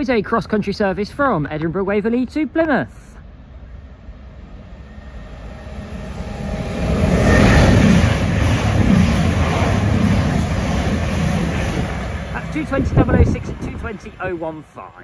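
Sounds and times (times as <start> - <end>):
diesel train engine: 0.0 - 15.0
wheels on rails: 4.2 - 14.4.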